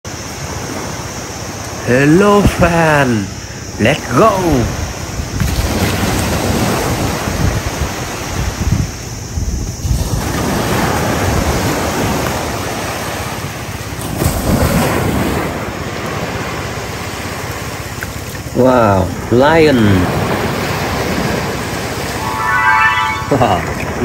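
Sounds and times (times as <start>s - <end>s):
waves washing over sand: 0.1s - 23.2s
wind rumbling on microphone: 4.6s - 12.2s.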